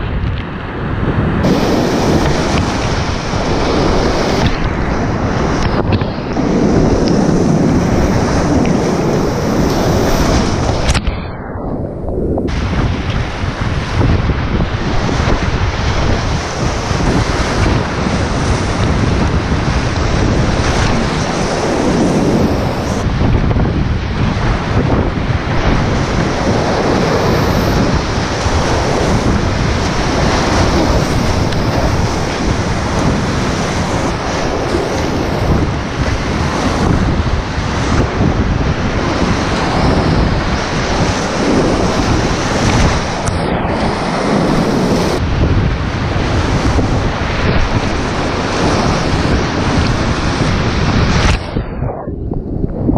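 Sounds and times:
wind buffeting microphone: 0.0 - 52.9
whitewater rapids rushing: 1.4 - 5.2
water washing over microphone: 1.4 - 11.0.

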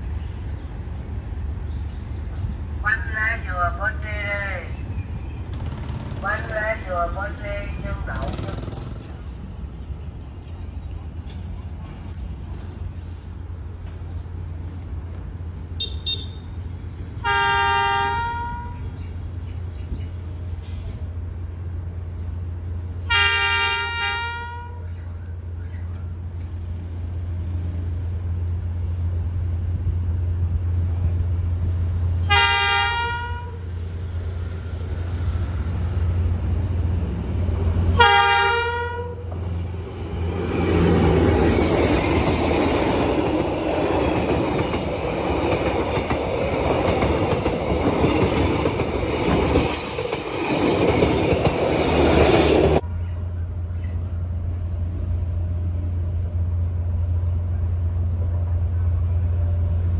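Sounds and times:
locomotive engine rumble: 0.0 - 59.9
passing train rushing noise: 0.0 - 59.9
train horn blasts: 15.8 - 16.5, 17.2 - 18.8, 23.1 - 24.9, 32.2 - 33.6, 38.0 - 39.3.

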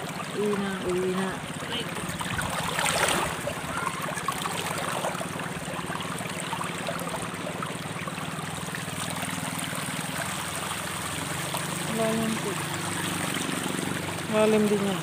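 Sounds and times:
river running over rocks: 0.0 - 15.0
splash in water: 1.6 - 7.3.

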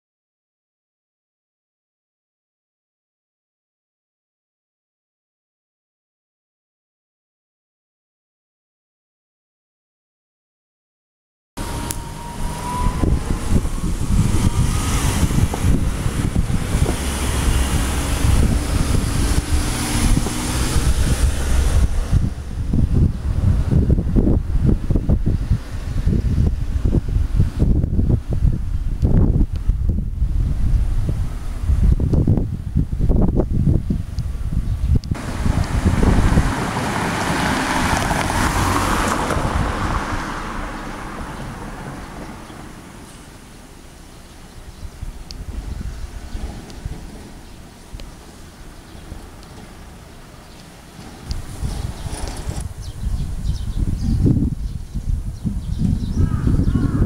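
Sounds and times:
cars passing close by: 11.6 - 28.4, 35.2 - 55.2
wind buffeting microphone: 11.6 - 57.0.

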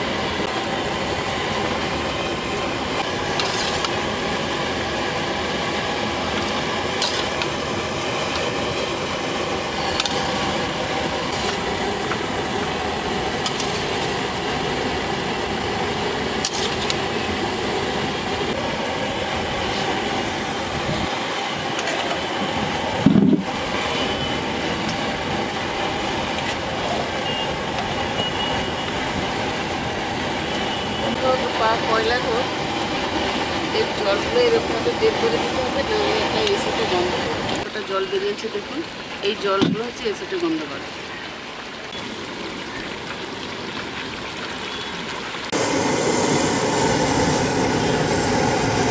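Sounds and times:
chicken sizzling in wok: 0.0 - 18.2.

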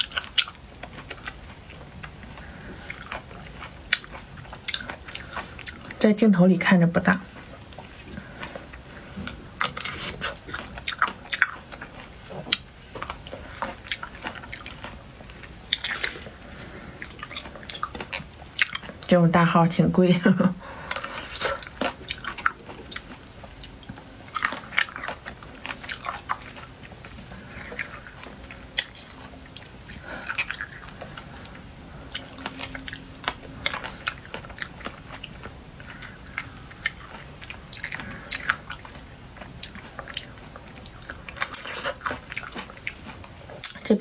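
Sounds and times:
chewing: 0.0 - 6.3, 7.2 - 19.1, 20.6 - 44.0
biting into cherries: 7.6 - 19.0.

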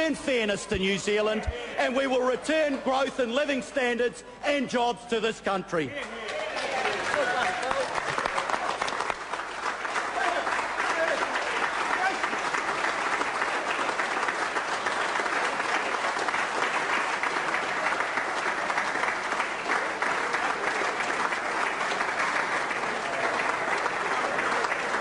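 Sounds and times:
applause: 6.0 - 25.0.

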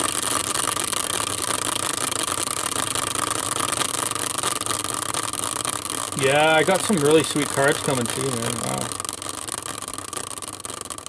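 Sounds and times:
prize wheel whirring: 6.1 - 9.1.

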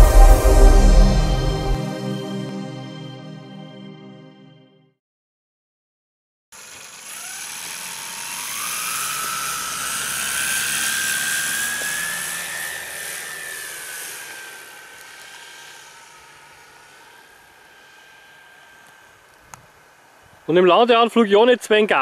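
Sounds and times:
model plane motor whining: 6.6 - 20.6.

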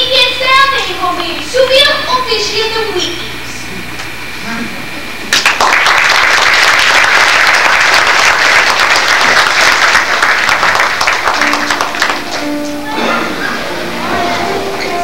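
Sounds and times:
audience applauding: 5.3 - 13.0.

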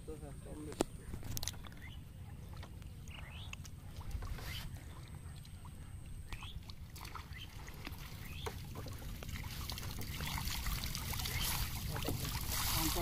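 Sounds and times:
water pouring and dripping: 6.6 - 13.0.

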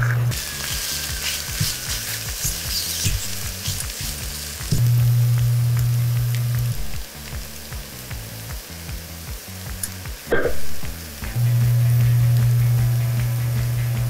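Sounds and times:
eggs sizzling in oil: 0.0 - 14.0
loud low hum: 4.7 - 8.9, 10.3 - 14.0.

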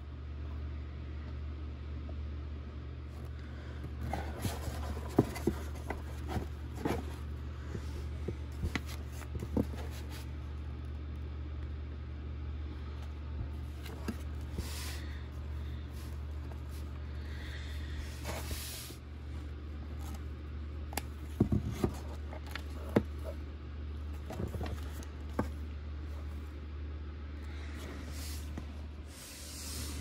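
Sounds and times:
steady low hum: 0.0 - 30.0
paper rustling: 4.0 - 7.3, 24.1 - 25.6.

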